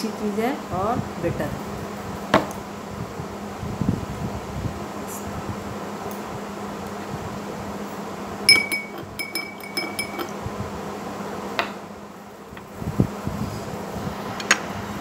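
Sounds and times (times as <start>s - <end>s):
spoon clinking in glass: 8.5s - 10.4s.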